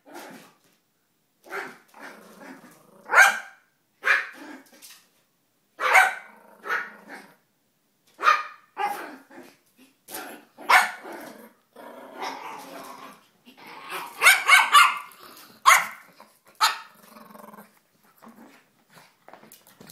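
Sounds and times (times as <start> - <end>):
dog growling: 2.0 - 3.1, 6.3 - 7.4, 8.9 - 14.2, 15.1 - 18.6
small dogs yapping: 13.9 - 16.0.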